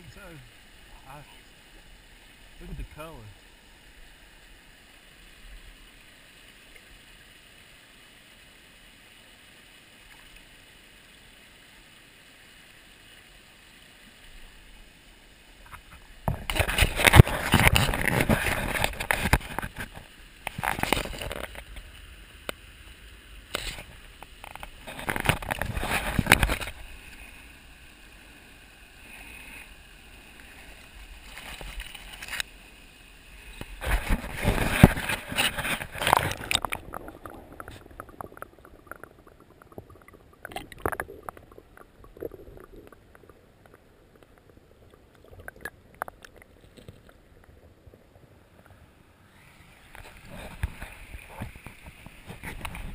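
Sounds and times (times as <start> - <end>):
water splashing and sloshing: 13.7 - 52.9.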